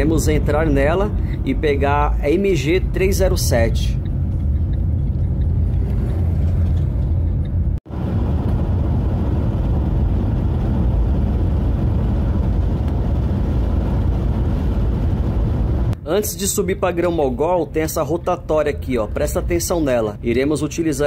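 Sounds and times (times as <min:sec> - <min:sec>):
car engine and tyre rumble: 0:00.0 - 0:16.0.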